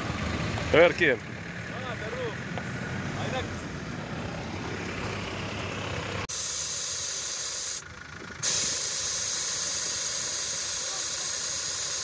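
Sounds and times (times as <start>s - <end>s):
low vehicle rumble: 0.0s - 6.4s, 7.0s - 12.0s
air hissing out of tyre: 6.3s - 12.0s.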